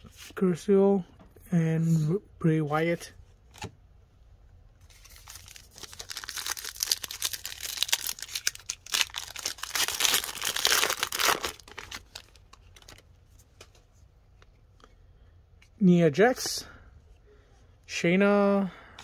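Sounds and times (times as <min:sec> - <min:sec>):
wrapper crinkling and tearing: 0:04.8 - 0:13.0.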